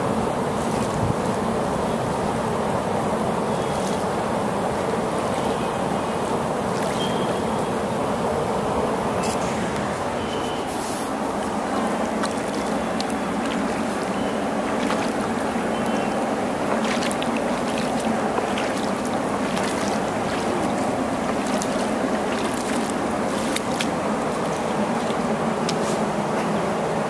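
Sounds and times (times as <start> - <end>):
flip-flop steps in shallow water: 0.6 - 1.4, 3.6 - 4.2, 6.7 - 7.3, 9.2 - 26.1
water rushing over a ledge: 11.1 - 25.8.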